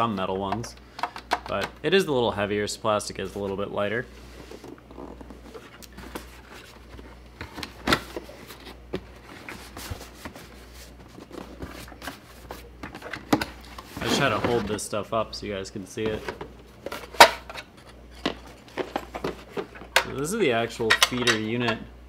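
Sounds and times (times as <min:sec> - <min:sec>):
cardboard box rustling and scraping: 0:04.2 - 0:12.8, 0:13.7 - 0:14.8.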